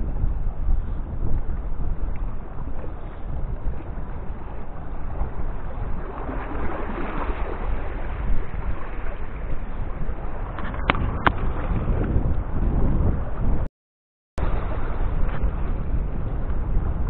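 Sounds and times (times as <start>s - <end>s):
wind buffeting microphone: 0.0s - 13.7s, 14.4s - 17.0s
water washing against rocks: 5.8s - 9.2s.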